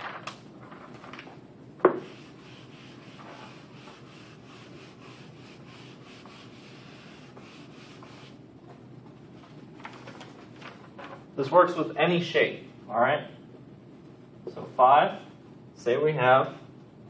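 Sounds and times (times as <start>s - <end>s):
eraser rubbing on whiteboard: 2.0s - 8.4s.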